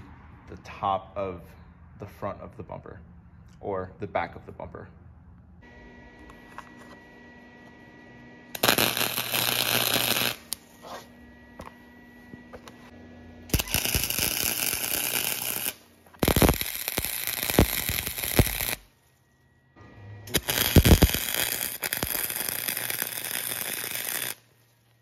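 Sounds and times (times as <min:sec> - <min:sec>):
welder arc crackling: 0:08.5 - 0:11.1, 0:13.5 - 0:18.9, 0:20.3 - 0:24.6.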